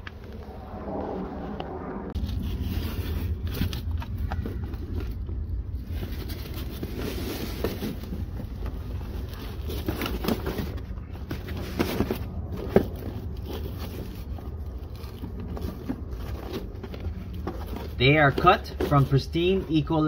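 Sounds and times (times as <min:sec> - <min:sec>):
steady low rumble: 0:00.0 - 0:09.7.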